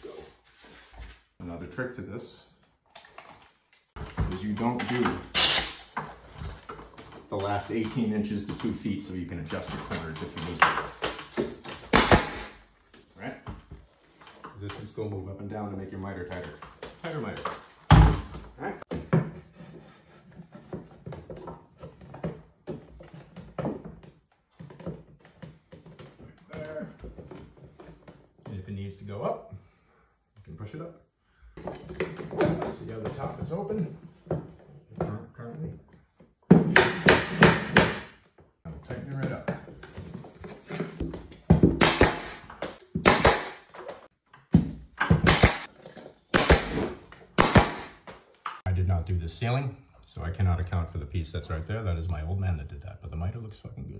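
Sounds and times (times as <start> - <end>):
nail gun firing: 5.2 - 6.0, 11.9 - 12.6, 41.8 - 43.8, 45.0 - 45.7, 46.3 - 48.1.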